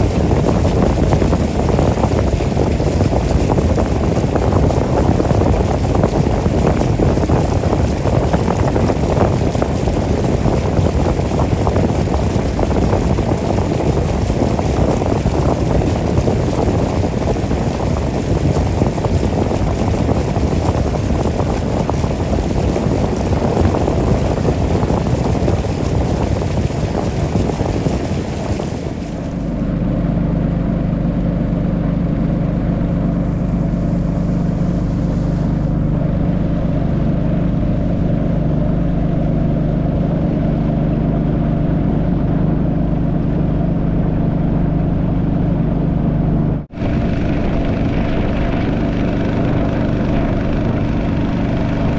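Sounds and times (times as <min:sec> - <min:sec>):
motorboat engine running: 0:00.0 - 0:51.9
wind and water rushing: 0:00.0 - 0:51.9.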